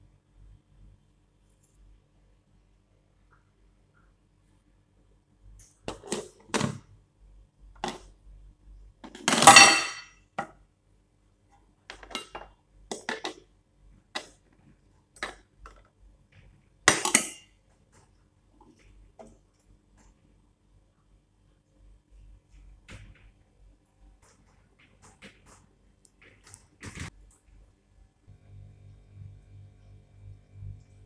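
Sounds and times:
pot and lid clattering: 9.2 - 10.1, 12.0 - 13.4.

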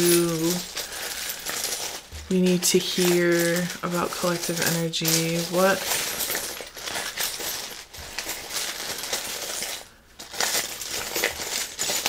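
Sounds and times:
small charms clinking rattle: 0.0 - 12.0.

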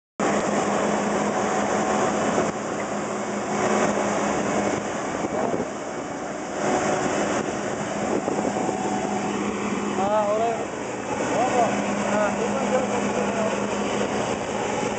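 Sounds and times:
combine harvester engine hum: 0.2 - 14.9
threshing machinery noise: 0.2 - 14.9.

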